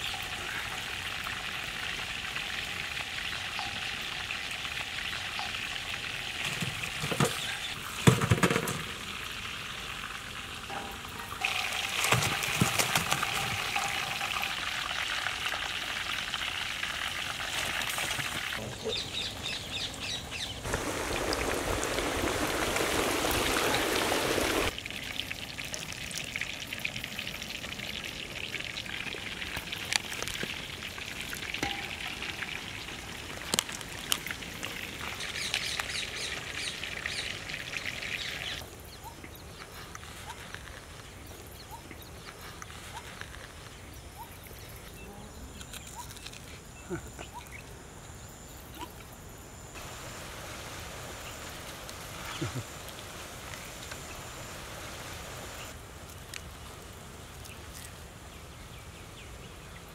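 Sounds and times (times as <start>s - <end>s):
chicken sizzling in hot oil: 0.0s - 18.6s, 20.6s - 38.6s.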